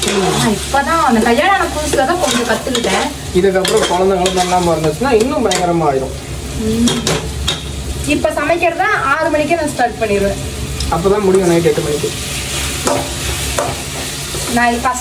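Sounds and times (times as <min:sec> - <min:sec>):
frying sizzle: 0:00.0 - 0:15.0
spatula scraping a pan: 0:01.8 - 0:05.7.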